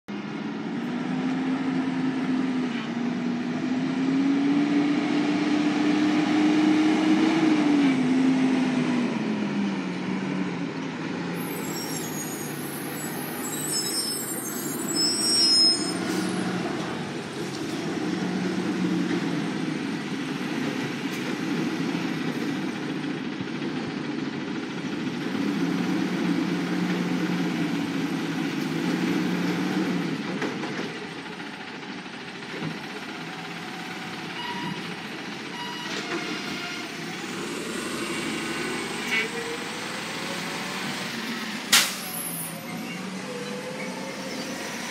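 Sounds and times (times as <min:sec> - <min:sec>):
high thin squeals: 0:11.4 - 0:16.5
garbage truck engine running: 0:16.6 - 0:44.3.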